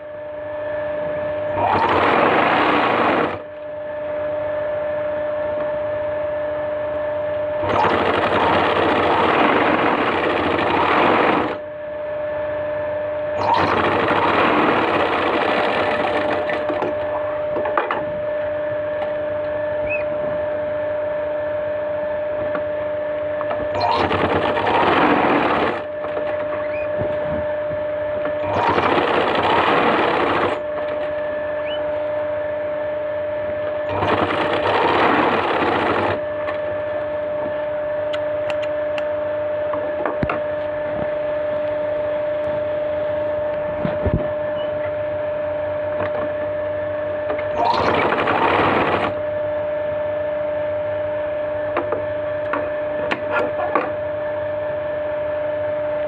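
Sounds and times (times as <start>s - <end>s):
steady hum: 0.0s - 56.0s
sewing machine stitching: 1.6s - 3.4s, 7.6s - 11.6s, 13.4s - 16.8s, 23.8s - 25.9s, 28.4s - 30.6s, 33.9s - 36.2s, 47.5s - 49.2s.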